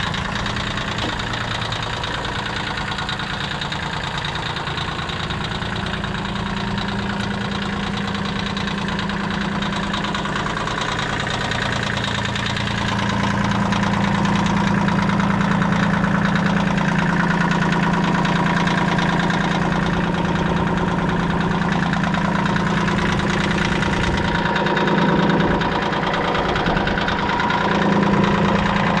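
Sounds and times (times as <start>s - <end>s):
tractor diesel engine idling: 0.0s - 29.0s.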